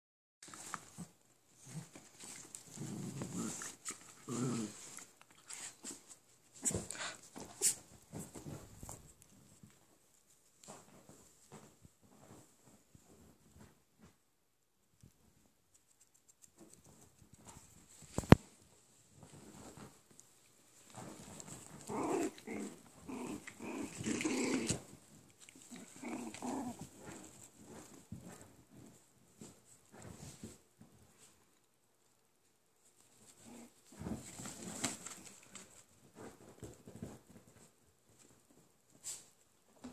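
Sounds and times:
dogs growling: 0:02.6 - 0:05.1, 0:21.4 - 0:27.8.

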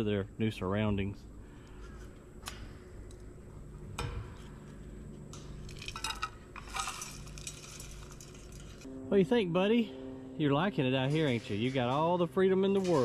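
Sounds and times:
hard objects clinking and rattling: 0:05.3 - 0:08.9.

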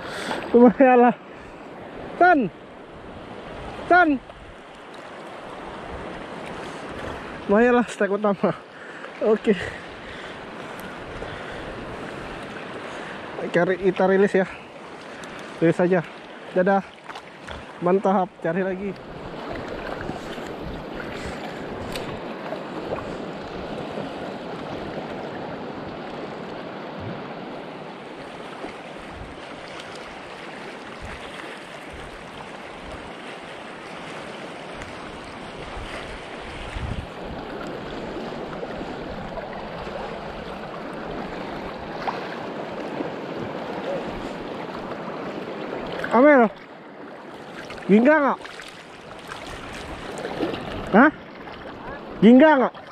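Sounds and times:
small waves lapping in shallow water: 0:00.0 - 0:52.9
wind buffeting microphone: 0:19.0 - 0:26.1, 0:34.7 - 0:46.0.

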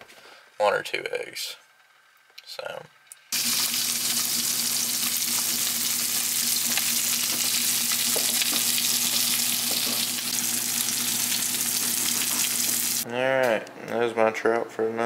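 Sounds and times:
fish sizzling in oil: 0:03.3 - 0:13.0.

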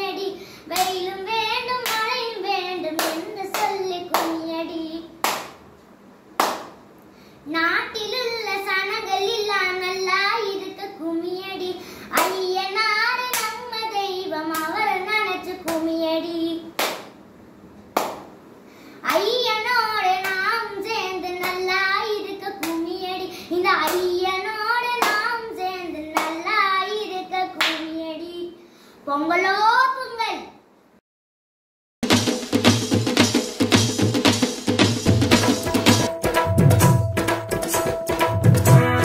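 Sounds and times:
girl singing: 0:00.0 - 0:05.3, 0:07.4 - 0:16.8, 0:19.0 - 0:30.5
hand clapping: 0:00.8 - 0:01.0, 0:01.8 - 0:02.1, 0:03.0 - 0:04.4, 0:05.2 - 0:05.6, 0:06.4 - 0:06.8, 0:12.2 - 0:12.4, 0:13.3 - 0:13.6, 0:16.8 - 0:17.2, 0:18.0 - 0:18.4, 0:20.2 - 0:20.4, 0:21.4 - 0:21.6, 0:23.8 - 0:24.1, 0:25.0 - 0:25.3, 0:26.2 - 0:26.4, 0:27.6 - 0:27.9.

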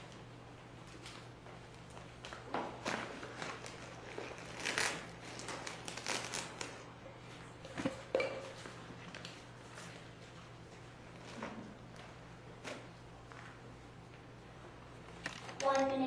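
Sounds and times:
papers rustling: 0:00.9 - 0:06.8.

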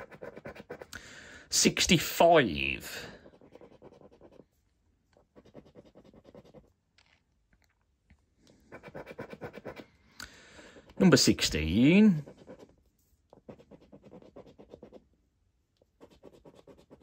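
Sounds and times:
scratchcard coating being scraped: 0:00.0 - 0:01.0, 0:03.0 - 0:04.5, 0:05.1 - 0:06.8, 0:08.6 - 0:10.0, 0:12.1 - 0:15.1, 0:15.8 - 0:17.0.

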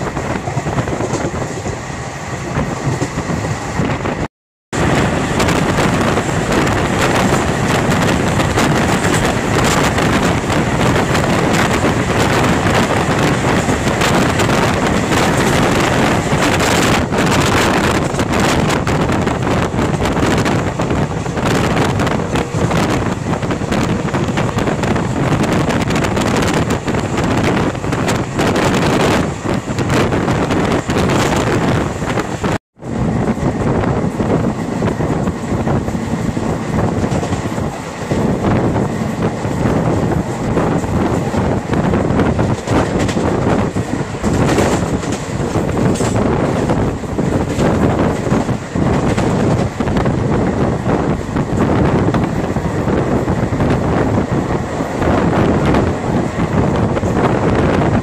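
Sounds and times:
freight train wagons rushing past: 0:00.0 - 0:58.0
rushing air: 0:00.0 - 0:58.0
train wheels on rails: 0:00.0 - 0:58.0
wind on microphone: 0:00.0 - 0:58.0.

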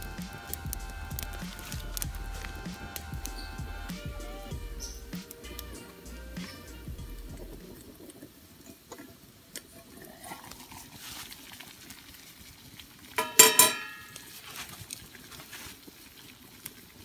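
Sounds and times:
campfire crackling: 0:00.0 - 0:17.0
water boiling in a pot: 0:00.0 - 0:17.0
metal pot lid clattering on grate: 0:13.2 - 0:14.2.

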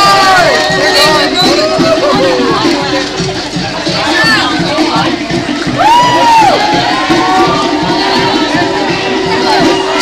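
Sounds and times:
crowd shouting and cheering: 0:00.0 - 0:10.0
music: 0:00.0 - 0:10.0
loud whoop: 0:05.8 - 0:07.6.

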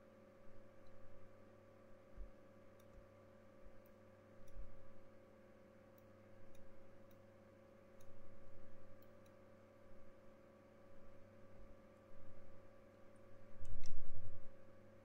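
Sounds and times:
low electrical hum: 0:00.0 - 0:15.0
faint sharp computer clicks: 0:02.7 - 0:03.1.

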